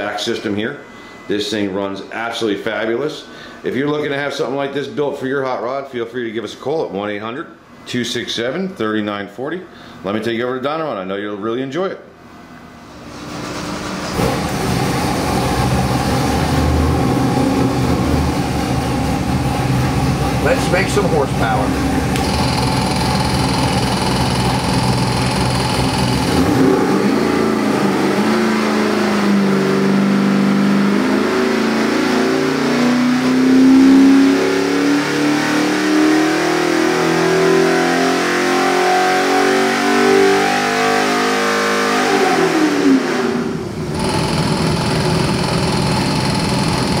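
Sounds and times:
engine revving under load: 13.1 - 47.0.

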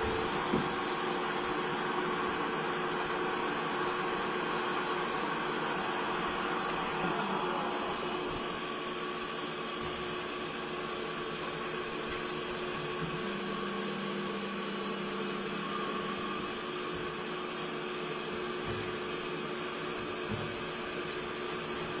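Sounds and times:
low machine tone: 0.0 - 8.7, 13.2 - 17.4
lathe humming and whining: 0.0 - 22.0.

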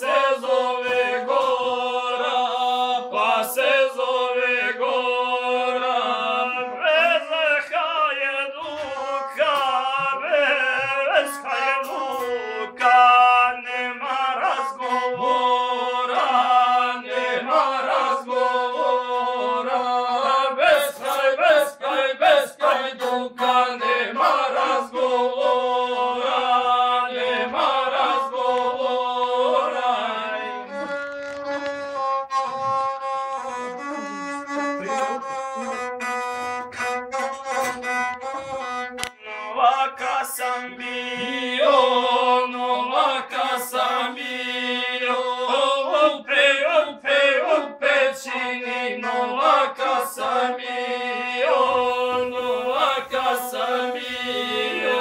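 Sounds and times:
bowed single-string fiddle melody: 14.5 - 21.1, 22.7 - 40.0.

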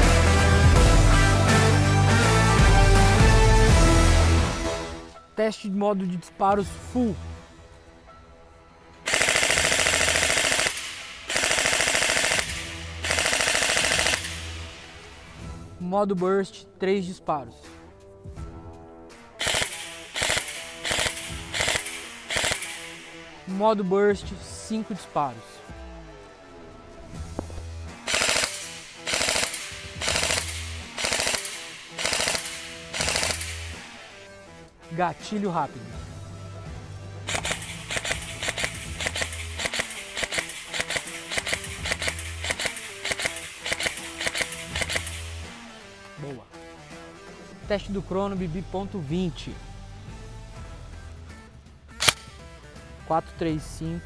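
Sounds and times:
airsoft rifle firing full auto: 9.1 - 14.9, 19.4 - 23.2, 28.0 - 34.3, 37.3 - 45.8, 52.0 - 52.3.

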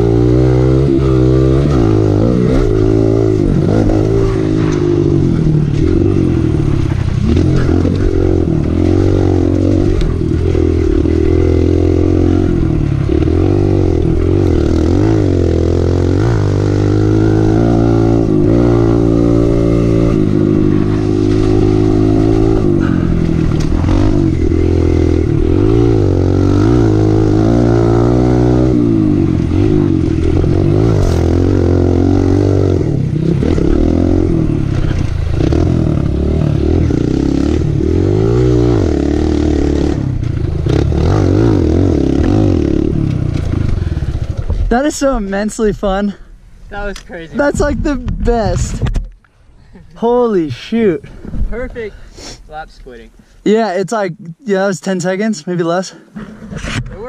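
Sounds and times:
dirt bike engine revving: 0.0 - 45.3.

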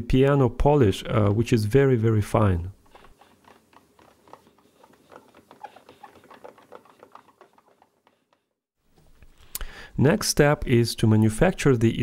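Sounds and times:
cloth rubbing wooden panel: 2.8 - 8.5.

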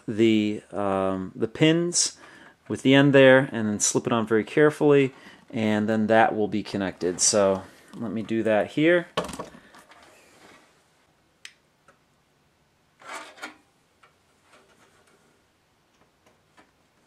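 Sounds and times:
wires rustling: 1.9 - 10.9, 13.0 - 17.0.

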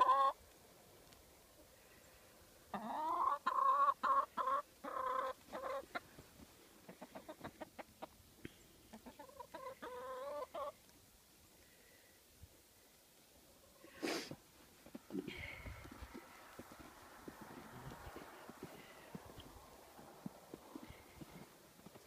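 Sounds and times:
chickens clucking: 0.0 - 0.4, 2.6 - 11.0
chickens squawking: 0.0 - 0.4, 2.7 - 6.2, 6.8 - 8.2, 8.9 - 10.8.

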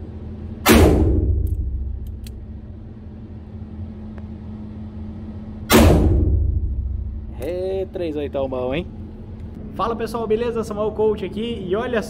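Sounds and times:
steady low hum: 0.0 - 12.0
revolver gunshot: 0.6 - 2.0, 5.7 - 7.2.

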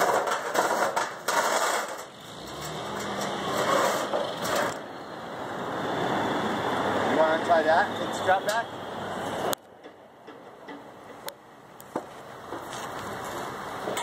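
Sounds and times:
sheet metal knocking and scraping: 0.0 - 4.8.

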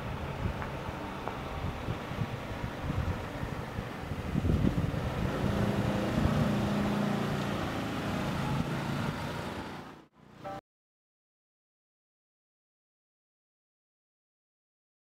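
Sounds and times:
motor scooter passing by: 2.2 - 10.6.

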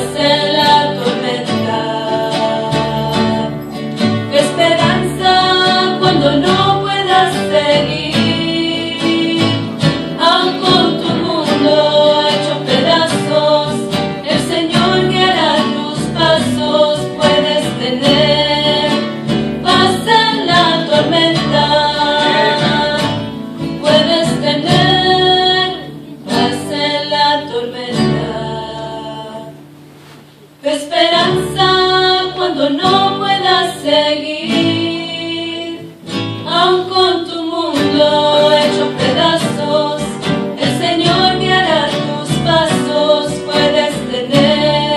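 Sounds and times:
instrumental accompaniment: 0.0 - 28.4
women singing a hymn: 0.0 - 44.9.

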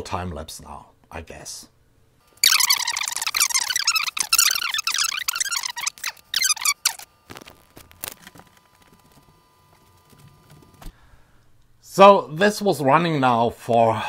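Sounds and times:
high-pitched squeaky chatter: 2.4 - 7.1.

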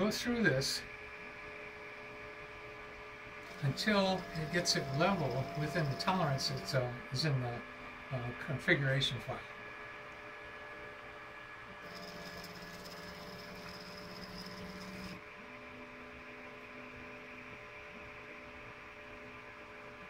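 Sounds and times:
stepper motors whining faintly: 3.3 - 9.1, 11.7 - 15.8.

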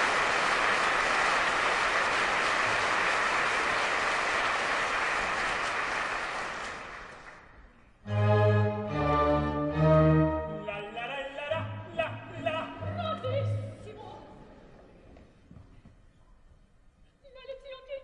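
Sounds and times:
audience applauding: 0.0 - 7.6
orchestra playing: 8.0 - 14.1.

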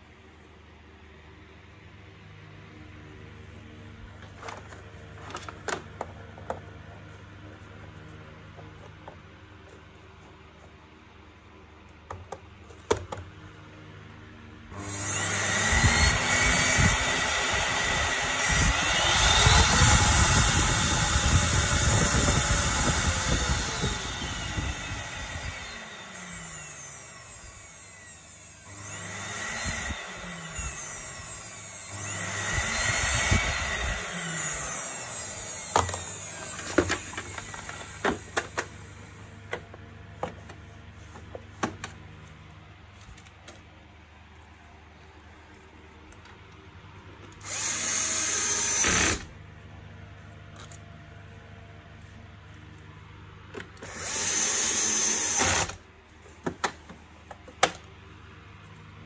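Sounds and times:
vacuum motor spinning: 14.7 - 40.5, 47.4 - 49.3, 53.8 - 55.8.

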